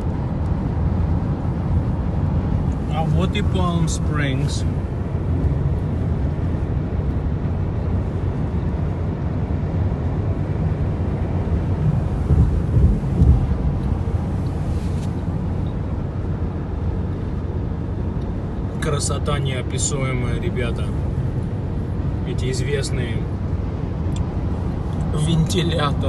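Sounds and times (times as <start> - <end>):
car road noise at speed: 0.0 - 26.0.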